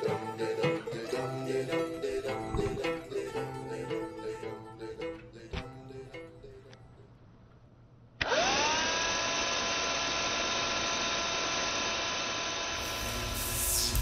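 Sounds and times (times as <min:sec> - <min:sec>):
handheld vacuum cleaner motor whine: 0:08.2 - 0:14.0.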